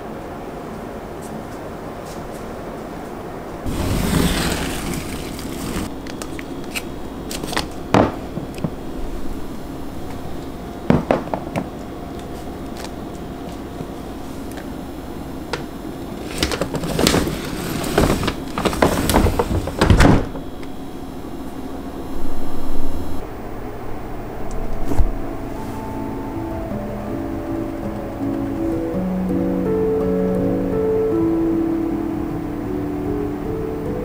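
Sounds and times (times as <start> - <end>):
freezer drawer sliding shut: 3.7 - 5.9, 16.2 - 20.5.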